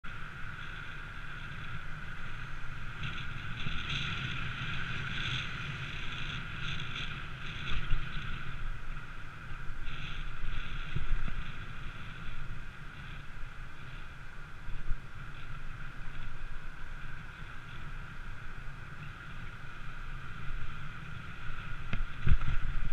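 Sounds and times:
road noise: 0:00.0 - 0:22.9
wind buffeting microphone: 0:00.0 - 0:22.9.

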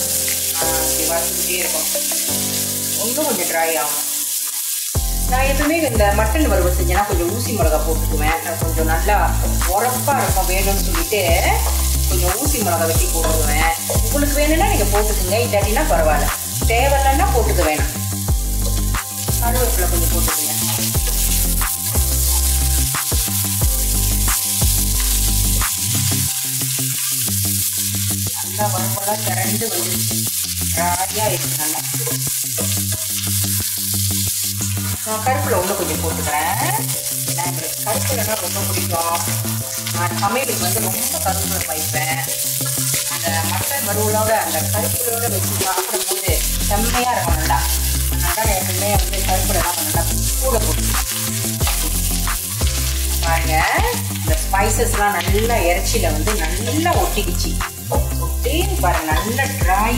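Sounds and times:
meat sizzling in a pan: 0:00.0 - 0:59.9
background music with bass: 0:05.0 - 0:28.7, 0:46.3 - 0:59.9.

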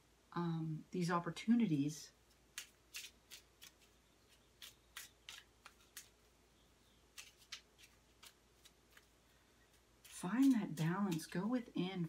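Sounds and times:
cards being shuffled: 0:02.5 - 0:06.3, 0:07.1 - 0:11.5.

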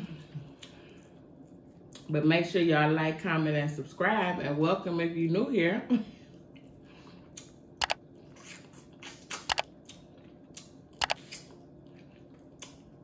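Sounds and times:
wet mouth chewing sounds: 0:06.6 - 0:13.0.

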